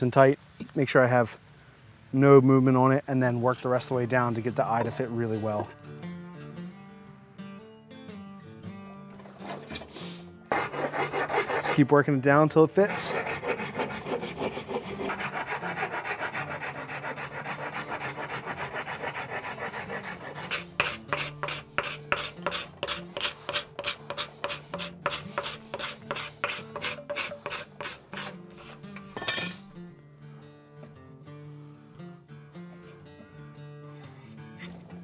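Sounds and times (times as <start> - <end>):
hand rasp scraping wood: 10.5 - 11.8, 12.8 - 28.8.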